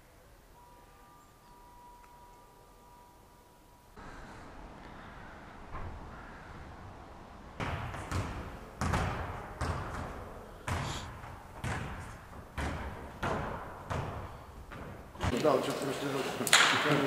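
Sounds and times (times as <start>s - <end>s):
dull thuds echoing in hall: 7.6s - 15.6s.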